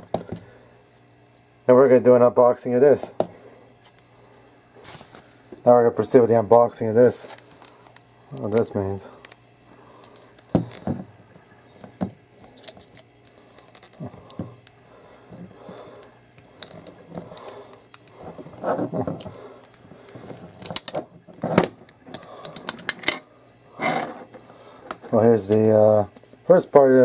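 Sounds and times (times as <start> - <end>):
plastic wrap crinkling: 12.4 - 14.8, 15.4 - 21.4.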